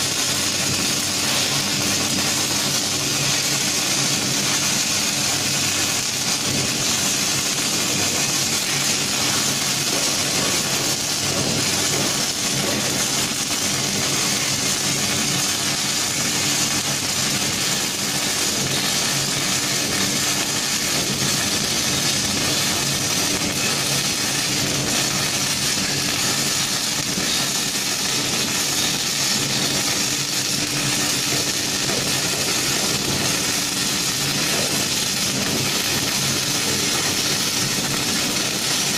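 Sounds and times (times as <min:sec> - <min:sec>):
welding arc crackling hiss: 0:00.0 - 0:38.9.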